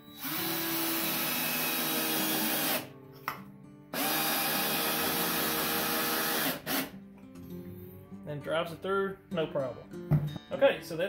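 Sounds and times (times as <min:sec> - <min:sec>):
cordless drill driving screw: 0:00.2 - 0:02.9, 0:04.0 - 0:06.9.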